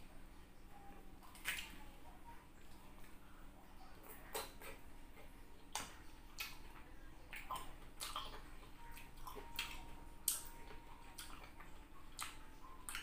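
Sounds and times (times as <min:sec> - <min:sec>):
wet eating mouth sounds: 0:07.3 - 0:13.0.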